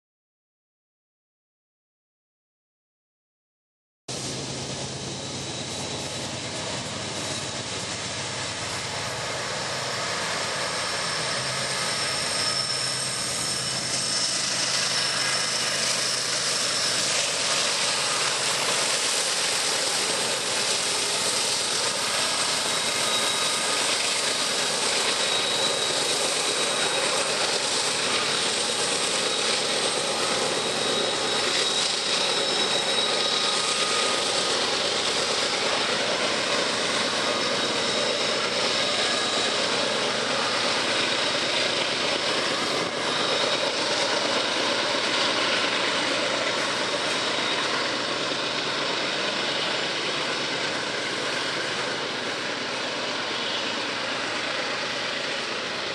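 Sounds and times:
diesel locomotives under load: 0:04.1 - 0:55.9
high-pitched wheel squeals: 0:09.7 - 0:52.1.

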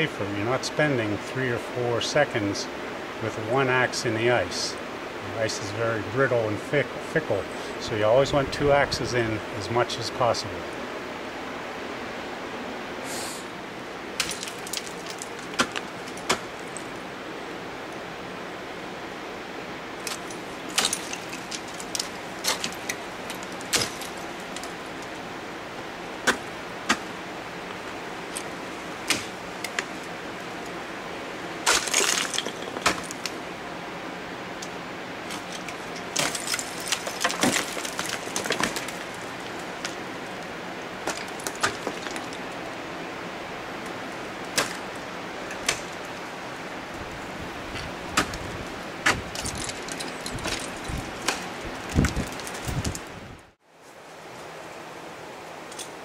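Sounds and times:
ice axes clattering: 0:14.2 - 0:17.0, 0:20.0 - 0:25.2, 0:26.3 - 0:27.2, 0:31.6 - 0:33.4, 0:35.2 - 0:40.0, 0:41.0 - 0:42.5, 0:44.5 - 0:46.0, 0:47.8 - 0:53.0.

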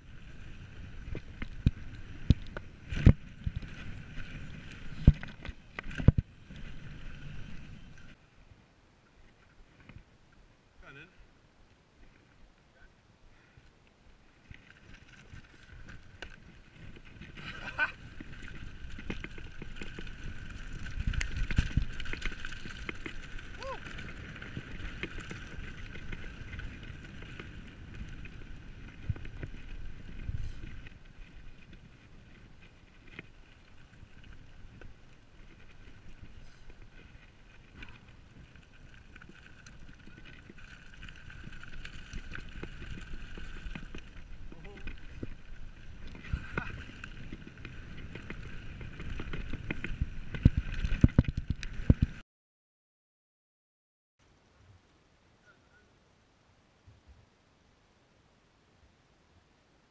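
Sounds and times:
bike rattling over bumps: 0:00.0 - 0:08.2, 0:14.4 - 0:52.2
bike tyre rumble on gravel: 0:00.0 - 0:08.2, 0:14.2 - 0:52.2.

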